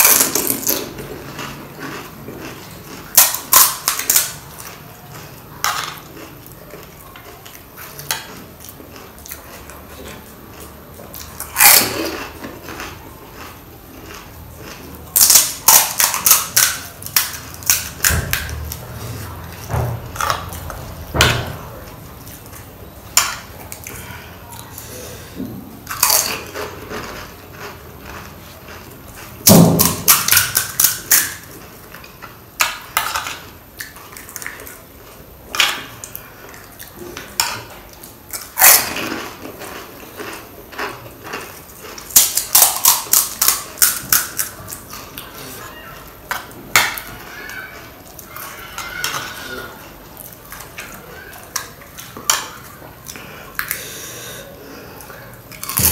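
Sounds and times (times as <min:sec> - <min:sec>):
wet chewing: 0:00.0 - 0:55.9
crisp shells crunching: 0:38.3 - 0:45.3.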